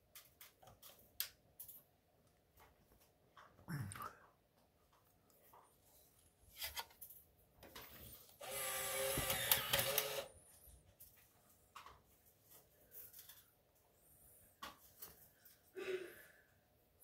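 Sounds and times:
motor whirring: 8.4 - 10.3.

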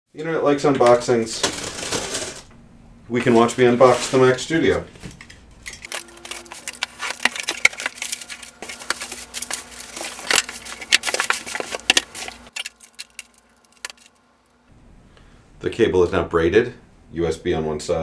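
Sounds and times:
bubble wrap and cardboard crackling: 5.9 - 14.2.

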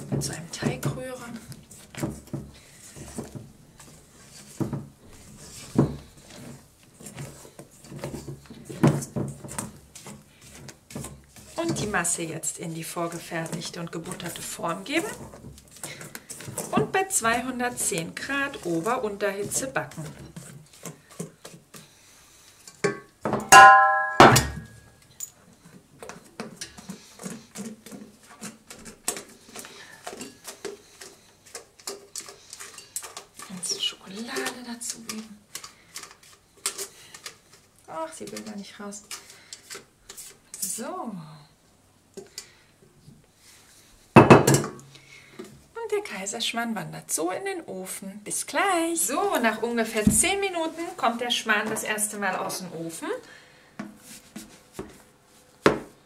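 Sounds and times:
metal bowl ringing: 23.5 - 24.7.

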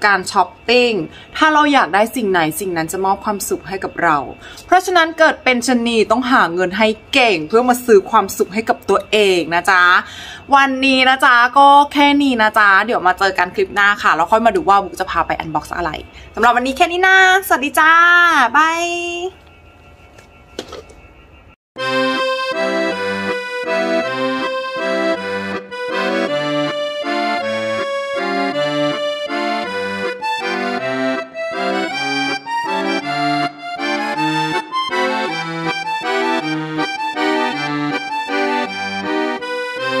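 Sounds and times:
instrumental background music: 21.8 - 40.0.

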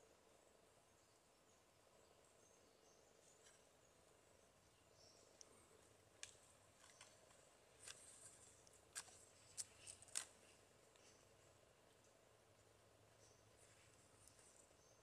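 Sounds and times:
faint outdoor background: 0.0 - 15.0.

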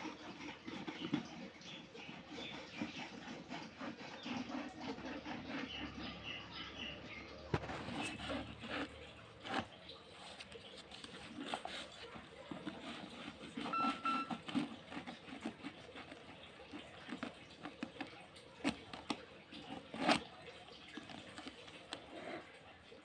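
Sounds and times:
cardboard rustling: 9.4 - 16.3
electronic beep: 13.7 - 14.4.

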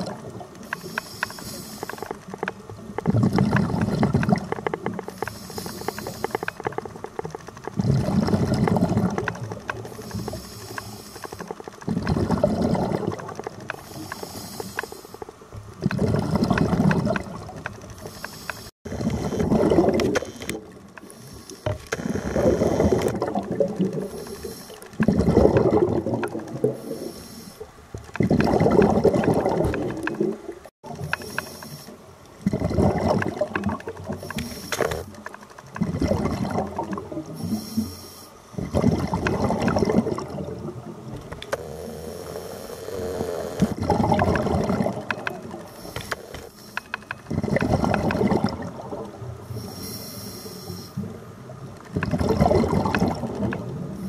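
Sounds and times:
exhaled bubbles: 0.0 - 0.8, 2.0 - 10.4, 11.8 - 14.2, 15.3 - 18.0, 18.9 - 27.2, 28.1 - 31.4, 32.4 - 37.6, 38.6 - 46.4, 47.2 - 49.7, 51.0 - 54.0
regulator hiss on inhale: 0.6 - 2.2, 5.1 - 6.7, 9.9 - 11.6, 13.7 - 15.3, 18.0 - 19.5, 20.1 - 23.1, 24.0 - 24.9, 26.7 - 27.7, 31.0 - 32.1, 34.1 - 35.2, 37.3 - 38.6, 41.5 - 43.8, 45.6 - 47.1, 49.4 - 51.2.

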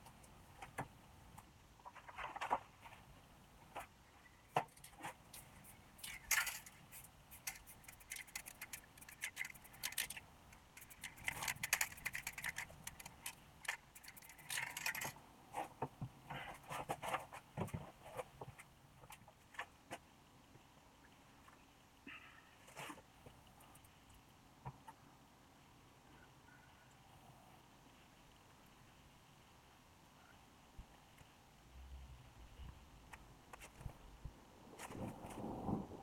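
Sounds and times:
tools scraping and clicking on wood: 4.6 - 19.7.

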